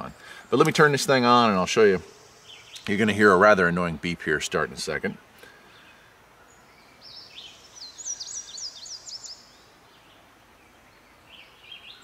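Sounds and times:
songbird chirping: 0:00.0 - 0:12.0.

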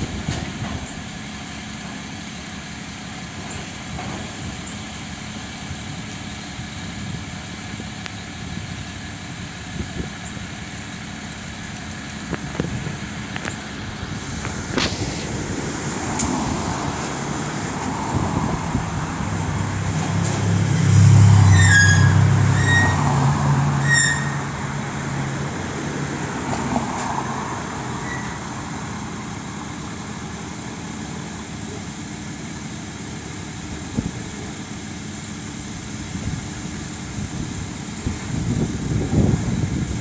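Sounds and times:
pickup truck engine running: 0:00.0 - 0:21.7.

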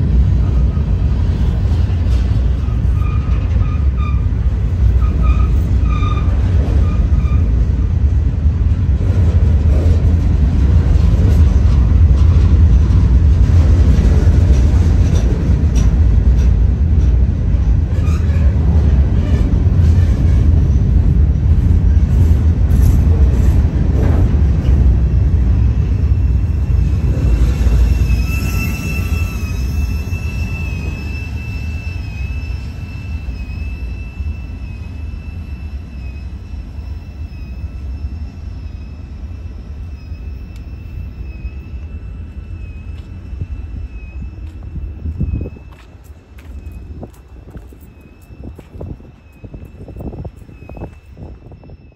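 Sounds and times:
freight train wheels rumbling: 0:00.0 - 0:51.9
high wheel squeal: 0:02.5 - 0:07.6, 0:17.9 - 0:20.8, 0:25.8 - 0:51.9.

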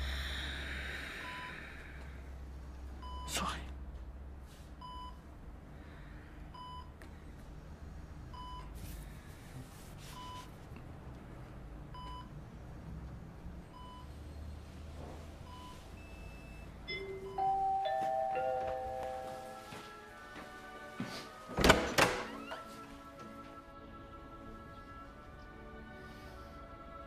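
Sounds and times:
patient monitor beeping: 0:15.5 - 0:19.7.

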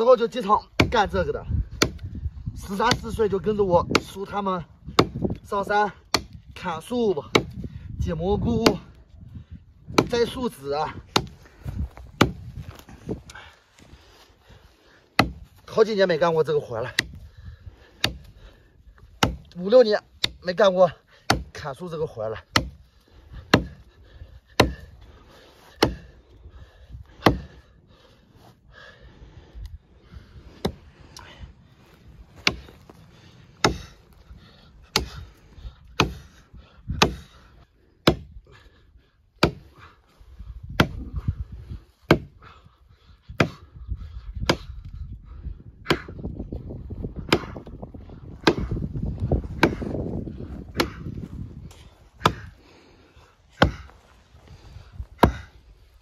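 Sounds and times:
hatchet chopping wood: 0:00.1 - 0:07.7, 0:08.4 - 0:09.0, 0:09.9 - 0:11.4, 0:12.1 - 0:12.5, 0:15.2 - 0:15.6, 0:16.8 - 0:17.2, 0:17.9 - 0:18.4, 0:19.0 - 0:23.9, 0:24.5 - 0:25.0, 0:25.7 - 0:26.2, 0:27.2 - 0:27.6, 0:30.5 - 0:30.8, 0:32.4 - 0:32.9, 0:33.5 - 0:34.0, 0:34.8 - 0:37.4, 0:38.0 - 0:38.4, 0:39.4 - 0:39.9, 0:40.7 - 0:41.2, 0:42.1 - 0:42.4, 0:43.3 - 0:43.7, 0:44.4 - 0:44.9, 0:45.8 - 0:46.4, 0:47.2 - 0:50.1, 0:50.7 - 0:52.6, 0:53.5 - 0:53.9, 0:55.2 - 0:55.6
low rumble: 0:44.9 - 0:52.2.

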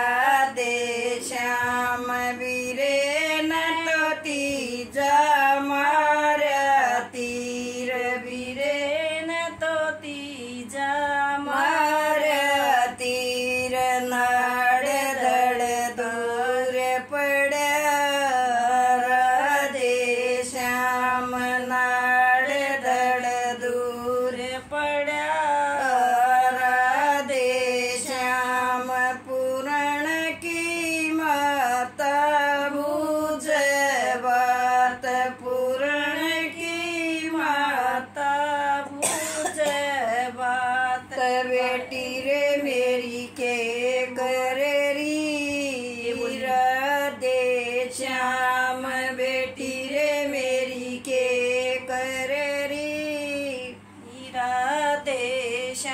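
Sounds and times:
elderly woman singing unaccompanied: 0:00.0 - 0:55.9.

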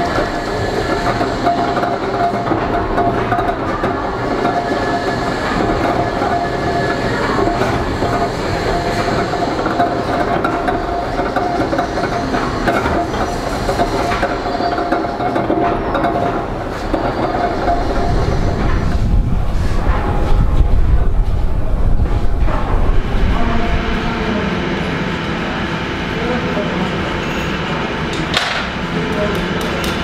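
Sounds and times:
constant mechanical whine: 0:00.0 - 0:30.0
steam engines clattering: 0:00.0 - 0:30.0
low rumble: 0:16.4 - 0:25.0.

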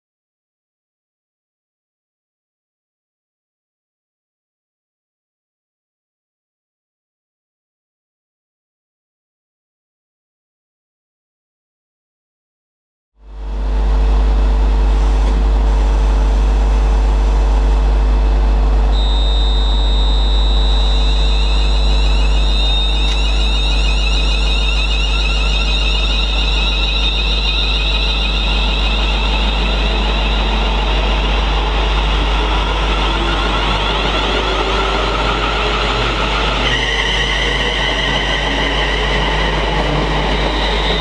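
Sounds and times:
high electric whine: 0:13.2 - 0:41.0
train rumbling: 0:13.3 - 0:41.0.

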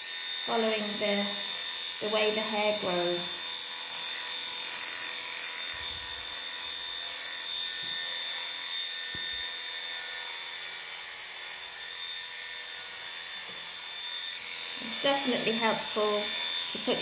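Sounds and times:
electric clippers humming: 0:00.0 - 0:17.0.

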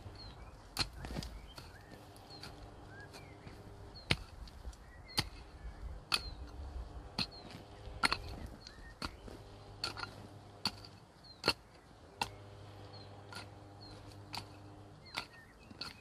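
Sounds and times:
hand hoe chopping into soil: 0:00.0 - 0:16.0
low steady hum: 0:00.0 - 0:16.0
faint bird chirps: 0:00.1 - 0:06.5, 0:08.3 - 0:09.4.

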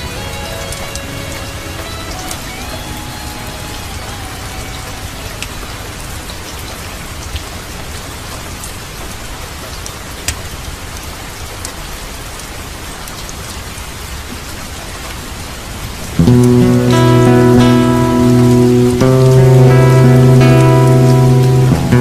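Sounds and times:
steady rain: 0:00.0 - 0:22.0
sharp crackles: 0:16.1 - 0:22.0.

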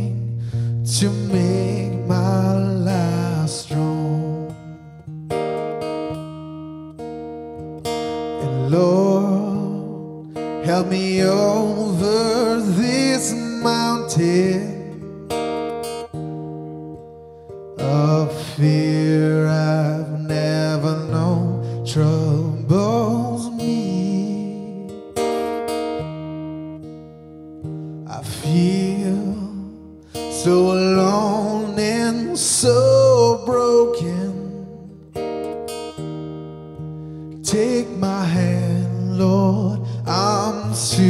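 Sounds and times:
man singing: 0:00.0 - 0:05.0, 0:08.4 - 0:15.2, 0:17.8 - 0:25.1, 0:28.0 - 0:35.0, 0:37.4 - 0:41.0
acoustic guitar chords: 0:00.0 - 0:41.0.

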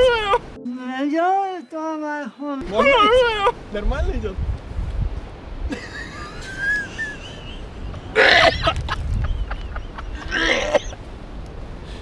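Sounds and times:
low wind rumble: 0:02.6 - 0:12.0.

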